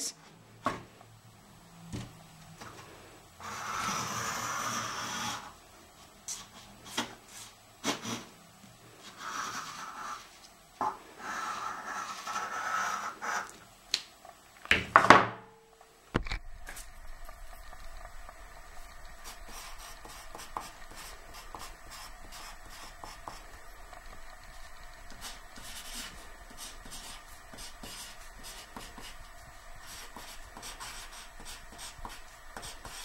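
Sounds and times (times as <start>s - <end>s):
pencil scraping across paper: 3.4s - 5.5s, 9.0s - 10.4s, 11.2s - 13.5s, 19.2s - 23.6s, 25.1s - 33.0s.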